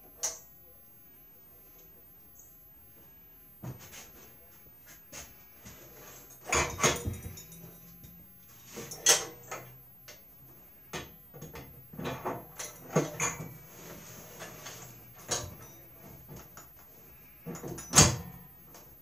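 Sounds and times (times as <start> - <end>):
metal clinks and knocks: 5.8 - 10.3, 10.9 - 13.6, 14.4 - 16.8, 17.4 - 18.8.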